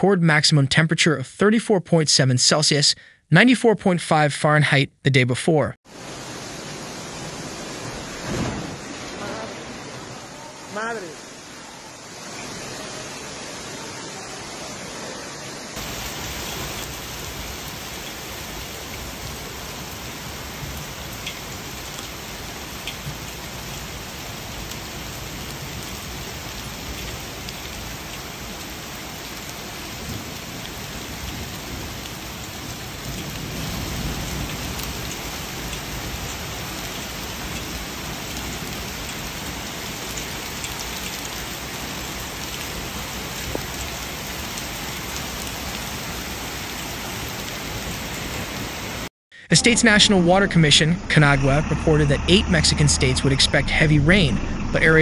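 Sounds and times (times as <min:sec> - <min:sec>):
heavy rain and hail: 0:05.9 - 0:49.1
low rush of water: 0:05.9 - 0:55.0.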